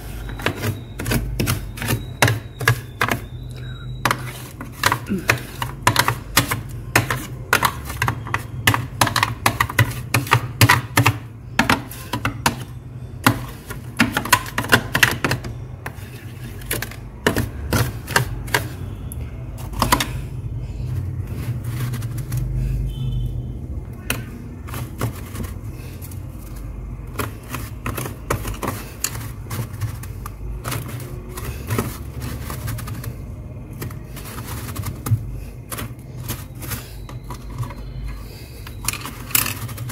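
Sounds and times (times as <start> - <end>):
fingers scraping freezer frost: 24.7 - 37.8.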